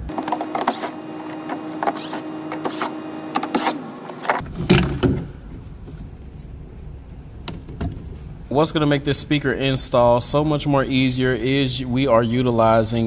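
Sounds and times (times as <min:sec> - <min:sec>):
power screwdriver whirring: 0:00.1 - 0:04.4
plastic knocks and handling: 0:04.2 - 0:06.0.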